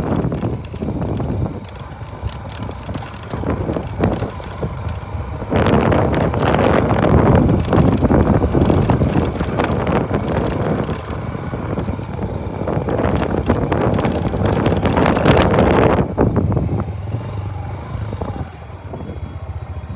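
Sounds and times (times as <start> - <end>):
rattles and clicks from stones: 0.0 - 15.8
wind buffeting microphone: 0.0 - 19.3
motorcycle engine rumble: 0.0 - 19.9.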